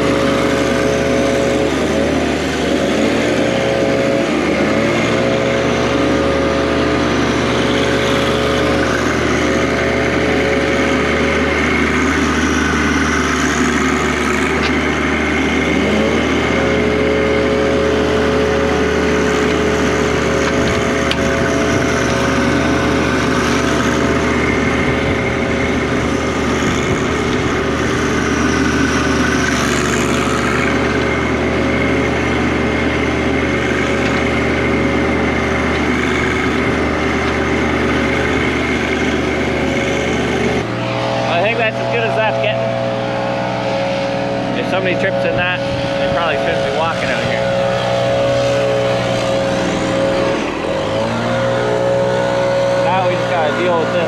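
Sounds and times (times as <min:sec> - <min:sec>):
tractor diesel engine revving: 0:00.0 - 0:54.0.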